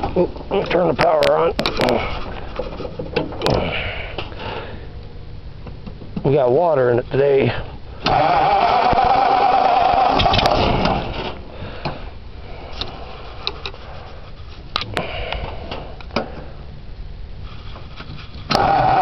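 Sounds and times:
engine cranking over: 8.0 - 11.5, 18.4 - 19.0.

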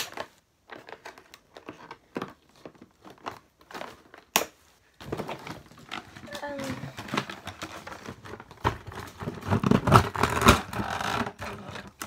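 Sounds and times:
packaging crinkling and crackling: 5.0 - 12.0.

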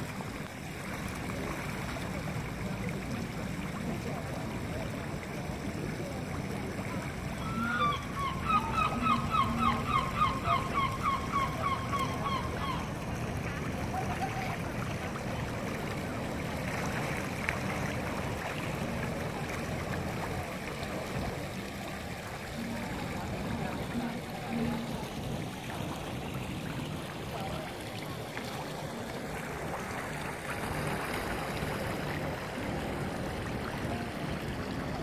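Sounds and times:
water pouring and churning: 0.0 - 35.0
bird call: 7.4 - 12.9.

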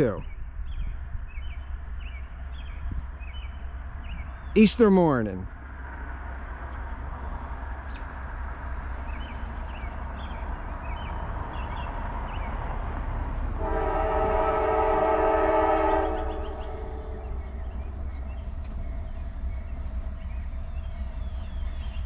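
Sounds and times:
locomotive horn chord: 13.6 - 17.7.

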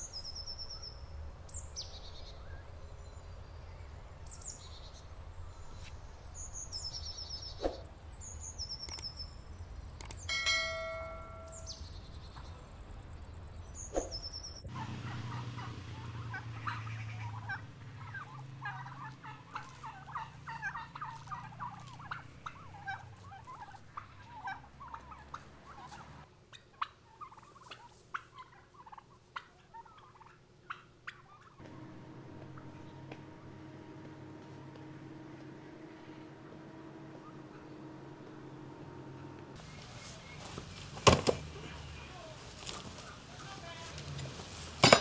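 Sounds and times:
turkeys gobbling and clucking: 14.0 - 41.4.

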